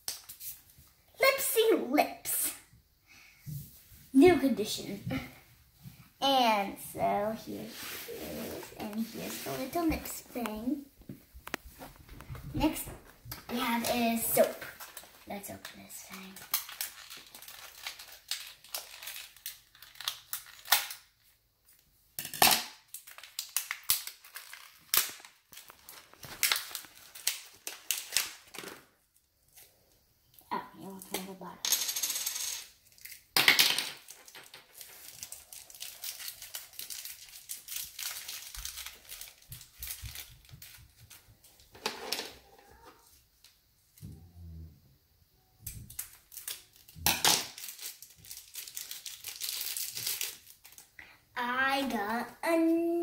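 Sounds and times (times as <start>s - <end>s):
wrapper crinkling: 13.5s - 21.8s, 22.8s - 29.0s, 34.0s - 41.7s, 45.9s - 51.0s.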